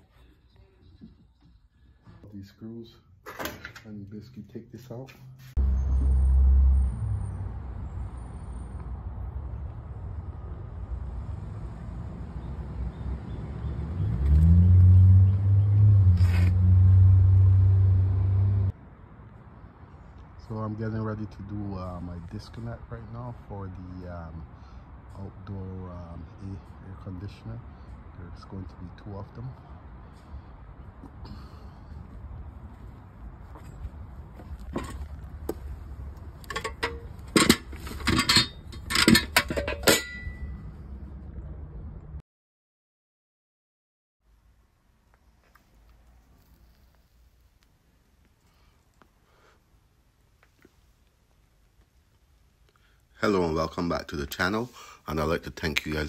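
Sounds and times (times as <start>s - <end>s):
low engine hum: 5.6s - 18.7s
tools clinking and knocking: 34.6s - 35.2s, 36.4s - 40.6s.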